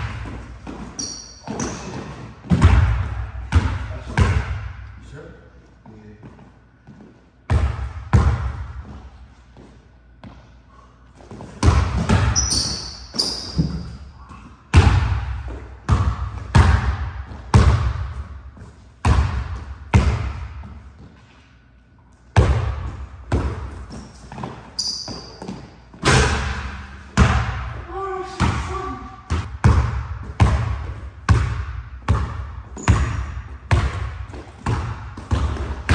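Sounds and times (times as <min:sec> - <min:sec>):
basketball bouncing on hardwood: 0:00.0 - 0:04.6, 0:11.4 - 0:12.7, 0:14.7 - 0:18.1, 0:19.0 - 0:20.7, 0:22.4 - 0:26.3, 0:29.3 - 0:35.9
sneakers squeaking on wood: 0:00.1 - 0:02.6, 0:11.3 - 0:14.4, 0:23.5 - 0:26.0, 0:32.7 - 0:33.4.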